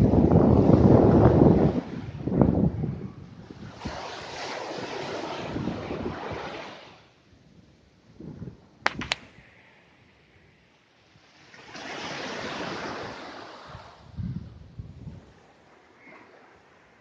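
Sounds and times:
wind buffeting microphone: 0.0s - 6.8s, 12.5s - 15.5s
wave foam hissing up sand: 3.5s - 7.1s
short sharp clicks: 8.8s - 9.4s.

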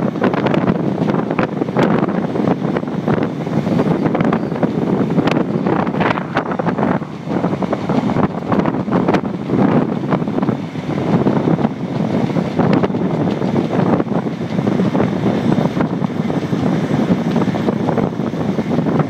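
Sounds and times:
train running on track: 0.0s - 19.0s
wind buffeting microphone: 0.0s - 19.0s.

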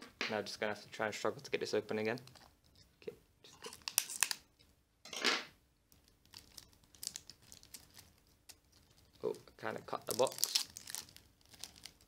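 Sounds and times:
plastic wrap crinkling and tearing: 1.9s - 2.6s, 3.5s - 4.5s, 5.9s - 12.0s
knife slitting plastic wrap: 3.6s - 4.4s, 10.0s - 12.0s.

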